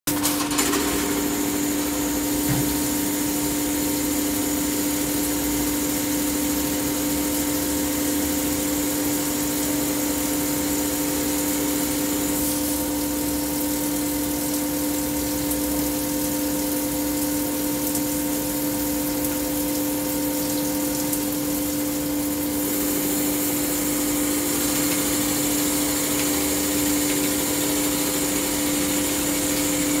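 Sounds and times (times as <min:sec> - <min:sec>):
coolant spraying hiss: 0:00.6 - 0:30.0
metal lathe humming: 0:22.5 - 0:30.0.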